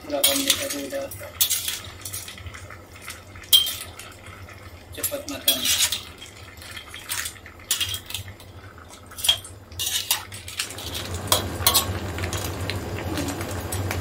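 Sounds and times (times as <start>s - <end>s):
metal spatula scraping a wok: 9.8s - 12.0s.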